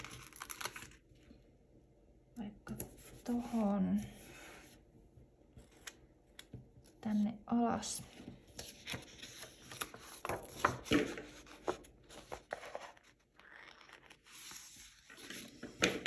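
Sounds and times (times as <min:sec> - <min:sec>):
paper page turning: 0:00.0 - 0:01.1, 0:08.5 - 0:16.0.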